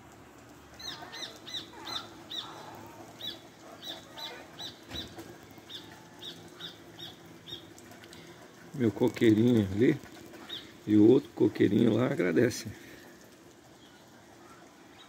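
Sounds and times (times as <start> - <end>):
rain falling on trees and pavement: 0.0 - 15.0
bird chirping: 0.8 - 7.8.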